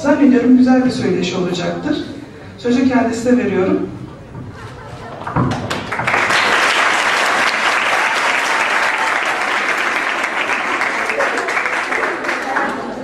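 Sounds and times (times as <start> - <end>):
crowd applauding: 4.6 - 13.0.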